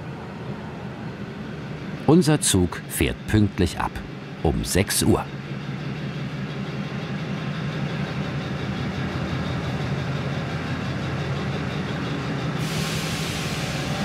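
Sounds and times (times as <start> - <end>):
diesel locomotive engine hum: 0.0 - 14.0
hiss: 12.6 - 14.0.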